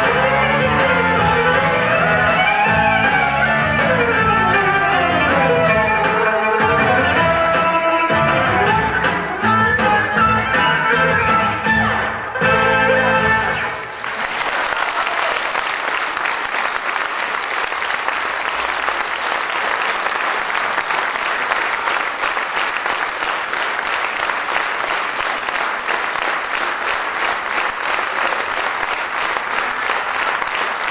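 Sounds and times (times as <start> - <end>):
audience applauding: 0.0 - 6.6, 13.6 - 30.9.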